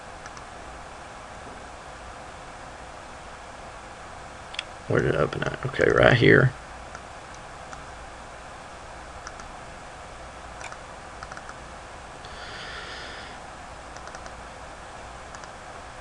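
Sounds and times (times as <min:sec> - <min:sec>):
soft rush of noise: 0:00.0 - 0:16.0
steady low hiss: 0:00.0 - 0:16.0
computer mouse clicks: 0:00.2 - 0:00.5, 0:09.2 - 0:09.5, 0:10.6 - 0:11.6, 0:14.0 - 0:14.4, 0:15.3 - 0:15.6.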